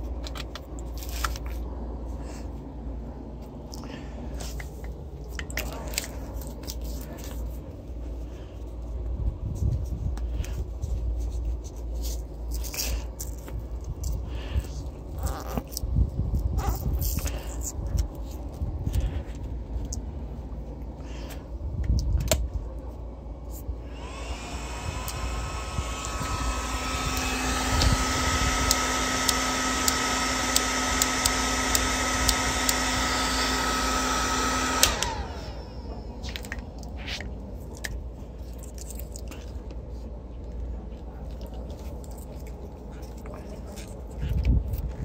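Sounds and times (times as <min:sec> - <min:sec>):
small electric motor whining: 0:23.8 - 0:36.6.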